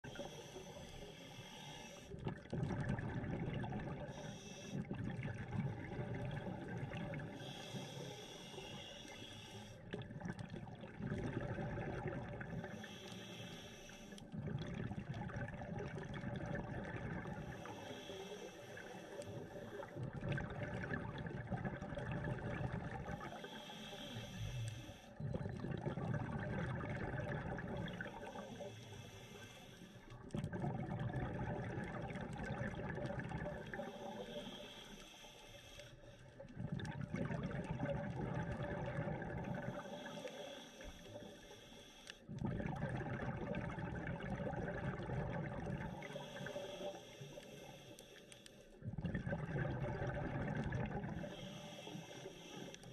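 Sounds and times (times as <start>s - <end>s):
regulator hissing inhale: 0.0s - 2.3s, 4.0s - 4.9s, 7.1s - 10.0s, 12.5s - 14.4s, 17.2s - 20.0s, 23.1s - 25.2s, 27.6s - 30.3s, 33.5s - 36.4s, 39.6s - 42.4s, 45.8s - 48.9s, 51.0s - 52.9s
exhaled bubbles rushing: 2.2s - 4.2s, 10.0s - 12.6s, 14.4s - 17.5s, 19.7s - 23.3s, 25.2s - 28.4s, 30.2s - 33.9s, 36.5s - 39.9s, 42.3s - 46.1s, 48.8s - 51.3s.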